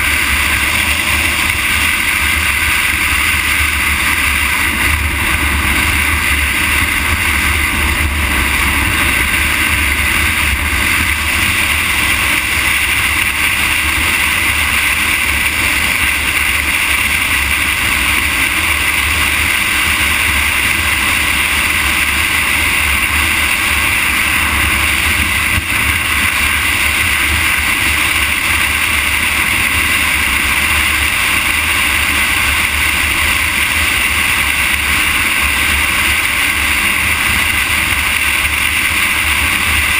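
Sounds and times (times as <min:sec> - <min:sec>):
vehicle road rumble: 0:00.0 - 0:39.9
wind rush on microphone: 0:00.0 - 0:39.9.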